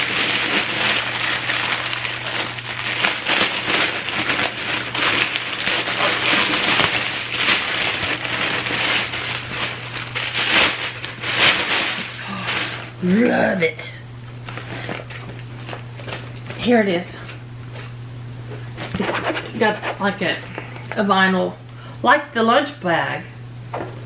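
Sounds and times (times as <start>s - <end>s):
plastic wrapping crinkling: 0.0s - 13.2s, 14.4s - 16.8s.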